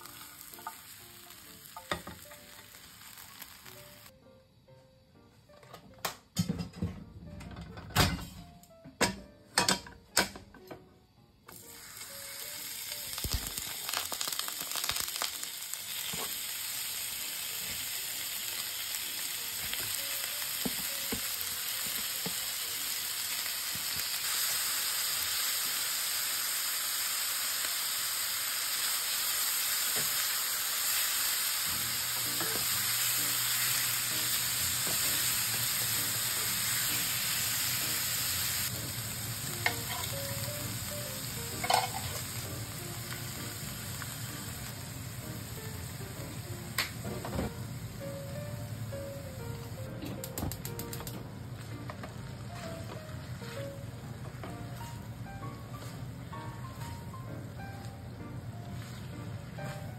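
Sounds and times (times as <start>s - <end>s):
meat sizzling in hot oil: 0.0s - 4.1s, 11.5s - 49.9s.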